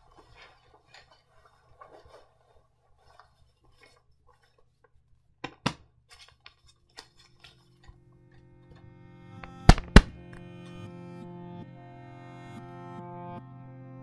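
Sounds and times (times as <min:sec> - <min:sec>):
paper banknote crinkling: 0:00.0 - 0:05.3, 0:06.0 - 0:10.3
banknote snapping: 0:09.4 - 0:10.4.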